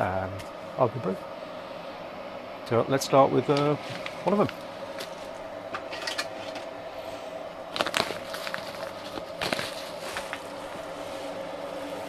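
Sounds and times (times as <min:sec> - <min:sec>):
faint hum: 0:00.0 - 0:12.0
plastic bag of grain crinkling: 0:07.7 - 0:11.0.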